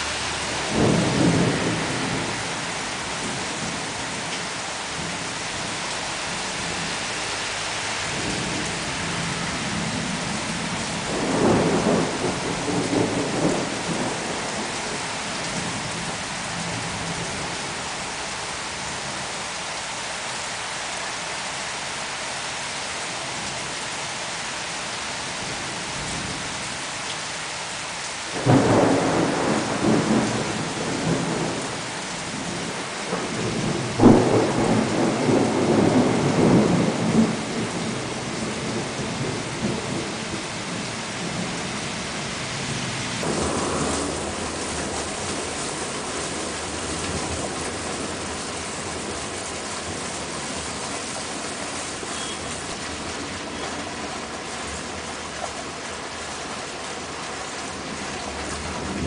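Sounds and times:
thunder rumbling: 0.0 - 6.9, 8.0 - 18.0, 28.3 - 55.3
steady rain: 0.0 - 59.0
sharp thunder crack: 33.4 - 37.4, 43.2 - 45.6.

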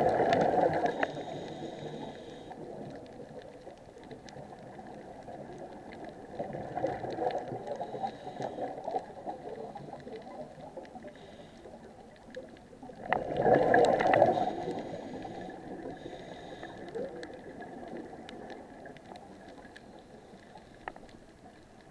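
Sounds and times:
small clicks: 0.0 - 21.9
underwater bubbles gurgling: 0.0 - 21.9.

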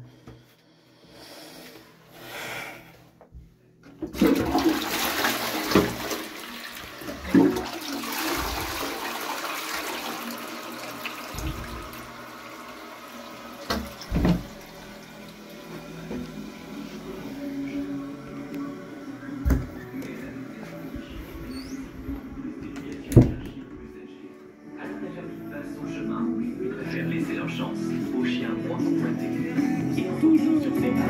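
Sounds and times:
toilet flushing: 4.0 - 18.2.

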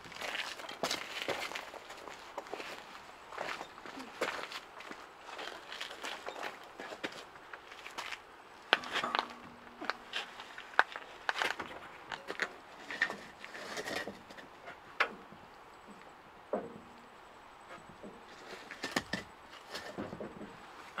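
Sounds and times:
knocks and clicks of timber and wheels: 8.0 - 21.0.

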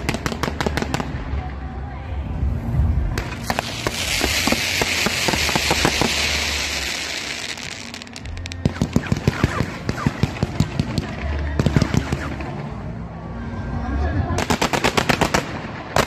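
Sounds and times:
fireworks crackling pops: 0.0 - 1.4, 3.1 - 12.6
hissing firework fountains: 0.0 - 12.8.

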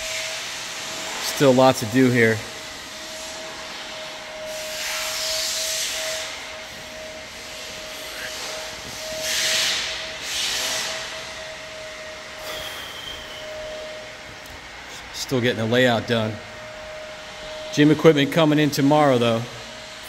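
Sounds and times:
steady mid-pitched hum: 0.0 - 20.0
hissing swells: 3.1 - 15.2.

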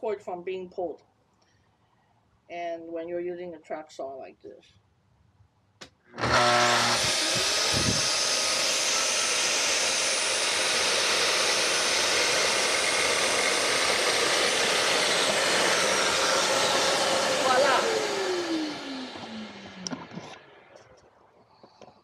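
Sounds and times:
dust extractor drawing air: 6.2 - 20.4
track saw whining: 6.2 - 21.0.

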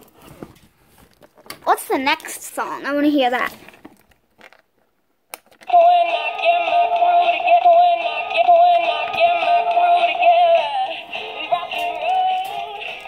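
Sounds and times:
song from small toy speaker: 5.6 - 13.0.

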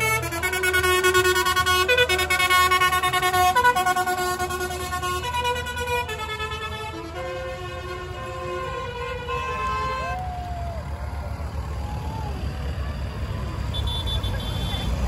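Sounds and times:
tractor engines rumbling: 0.0 - 15.0.

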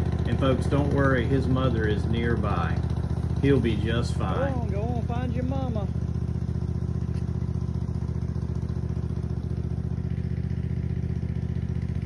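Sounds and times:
lawn mower engine idling: 0.0 - 12.0.

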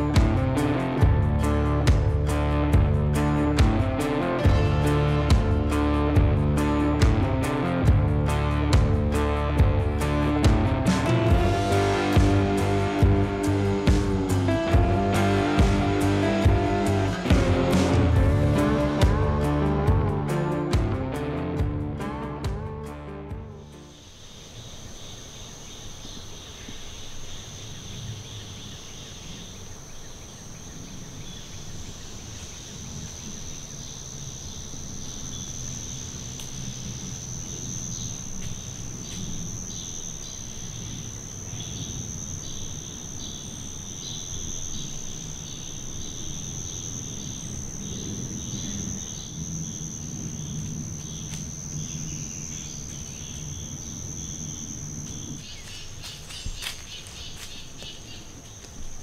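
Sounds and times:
high-pitched insect drone: 0.0 - 21.5, 23.6 - 59.0
rapidly pulsing insect chirping: 0.0 - 21.6, 23.5 - 59.0.

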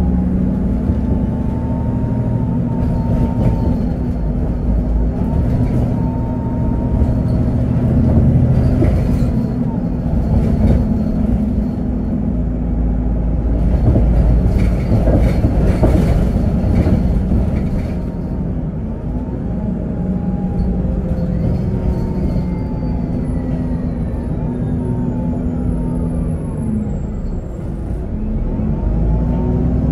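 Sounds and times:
bus body rattling: 0.0 - 29.9
bus engine low rumble: 0.0 - 29.9.

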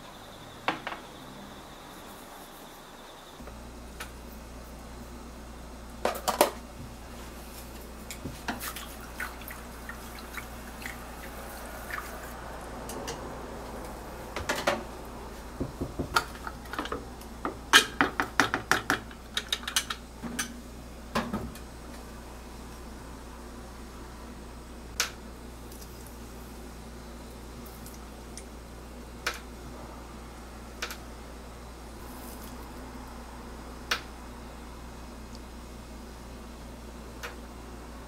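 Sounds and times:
soft watery hiss: 7.3 - 12.8.

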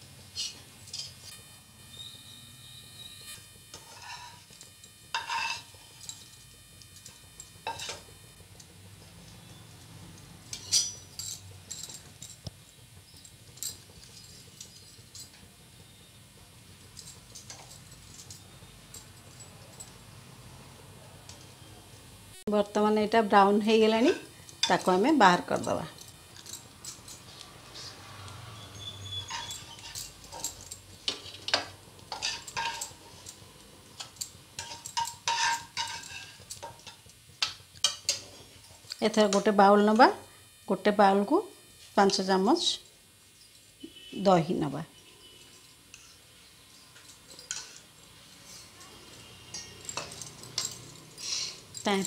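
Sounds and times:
metal spoon scraping a pan: 3.7 - 6.3, 7.6 - 8.1, 10.4 - 12.4, 24.0 - 39.5, 45.0 - 51.8
spatula scraping and knocking on pan: 5.1 - 5.8, 34.6 - 38.6.

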